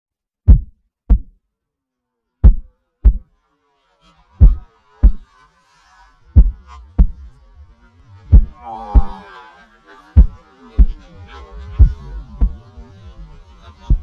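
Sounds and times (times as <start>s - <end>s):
heartbeat double thumps: 0.5s - 1.4s, 2.4s - 3.3s, 4.4s - 5.2s, 6.4s - 7.2s, 8.3s - 9.2s, 10.2s - 11.0s, 11.8s - 12.6s.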